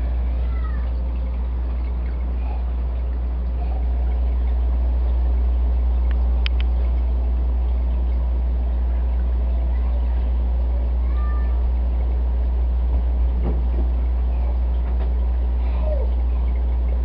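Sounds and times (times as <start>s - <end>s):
aquarium pump hum: 0.0s - 17.0s.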